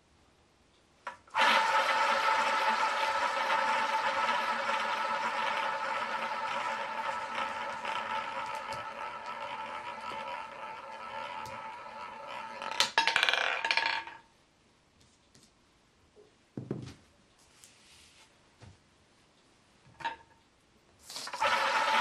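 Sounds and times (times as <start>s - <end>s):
roulette ball rolling whir: 1.1s - 14.2s, 21.1s - 22.0s
roulette ball clattering: 2.0s - 14.2s.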